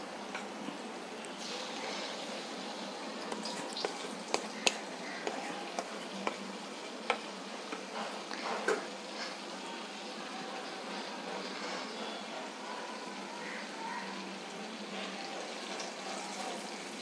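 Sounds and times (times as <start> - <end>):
fritters sizzling in hot oil: 0.0 - 17.0
utensils clicking in a pan: 3.2 - 8.8.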